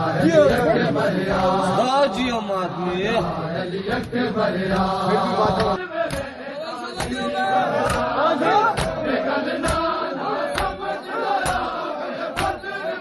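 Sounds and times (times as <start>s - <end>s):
crowd of men chanting: 0.0s - 13.0s
hands slapping chests: 3.9s - 6.4s, 7.0s - 12.8s.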